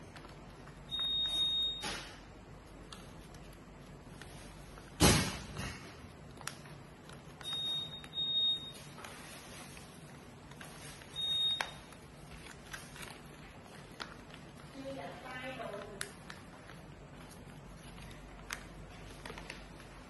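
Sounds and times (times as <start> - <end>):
paper rustling and creasing: 2.6 - 5.0, 6.1 - 20.0
paper slap: 4.9 - 6.6.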